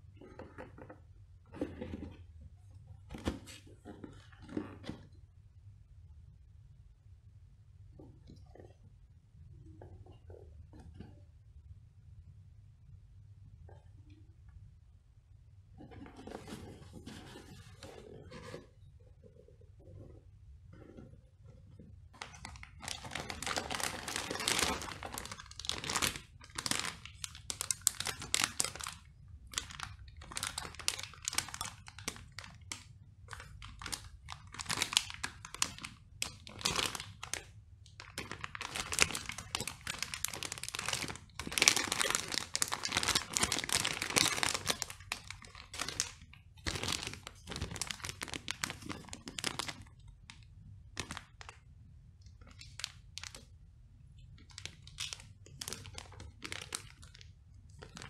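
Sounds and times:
plastic bags crinkling: 0:22.2 - 0:50.0, 0:51.0 - 0:51.5, 0:54.4 - 0:58.0.

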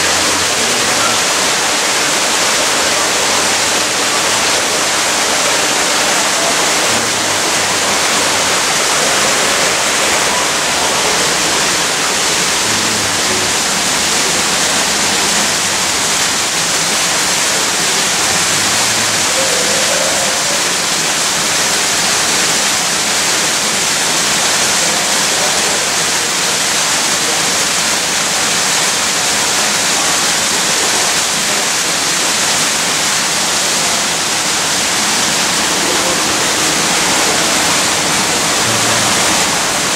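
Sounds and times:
loud rushing hiss: 0:00.0 - 0:19.4, 0:31.5 - 0:39.9.

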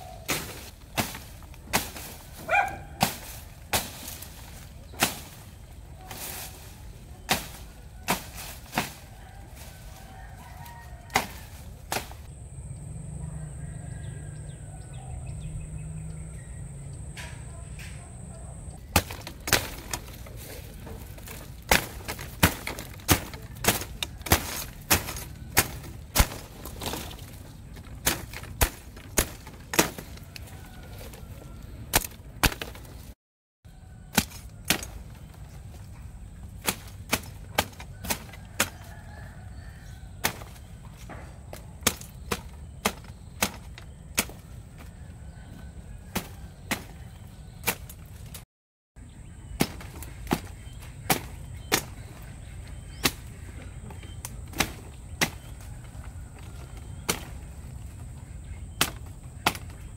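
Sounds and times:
machete chopping shrub stems: 0:00.0 - 0:12.4, 0:17.1 - 0:31.3, 0:31.9 - 0:33.2, 0:34.0 - 0:48.4, 0:49.2 - 0:59.9
stems cracking: 0:00.0 - 0:12.4, 0:16.0 - 0:33.2, 0:33.9 - 0:48.4, 0:49.3 - 0:59.9.

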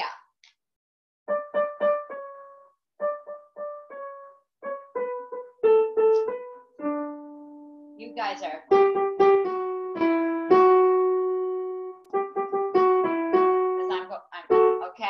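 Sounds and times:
piano melody: 0:01.3 - 0:15.0.

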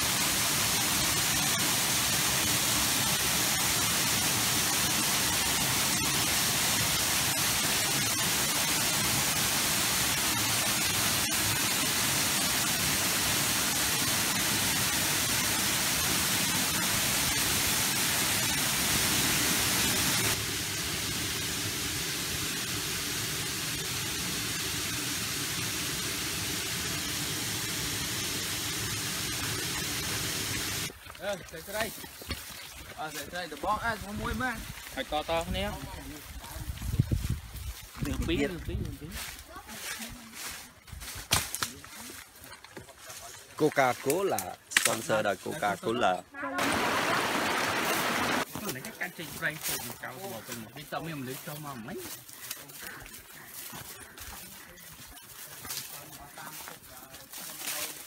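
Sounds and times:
waterfall splashing onto rocks: 0:00.0 - 0:36.5, 0:43.7 - 0:45.3, 0:46.6 - 0:52.2, 0:55.7 - 0:58.0.

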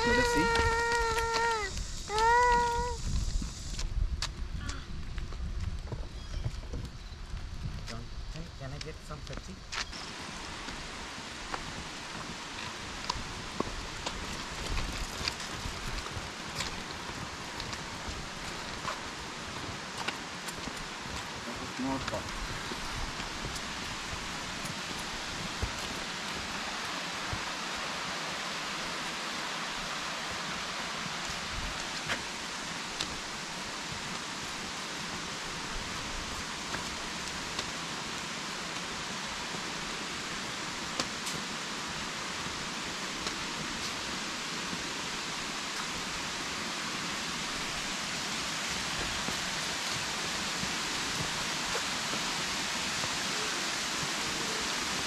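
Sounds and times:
creek rushing over rocks: 0:10.0 - 0:55.0.

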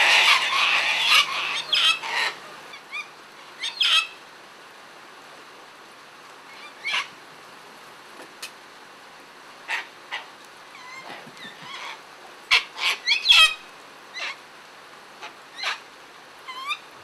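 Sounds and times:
cockatoos screeching: 0:00.0 - 0:02.6.

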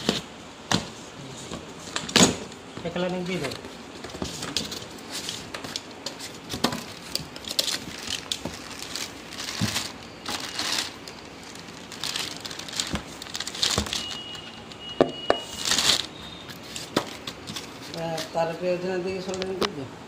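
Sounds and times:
plastic bag crinkling: 0:04.4 - 0:14.8, 0:15.4 - 0:18.5.

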